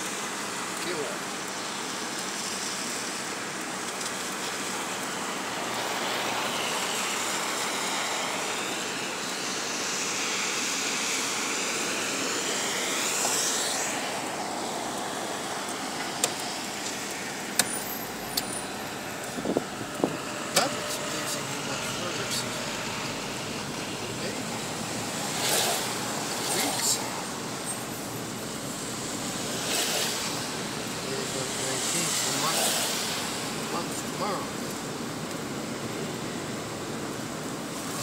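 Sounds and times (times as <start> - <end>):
tyre hiss on wet road: 0.0 - 38.0.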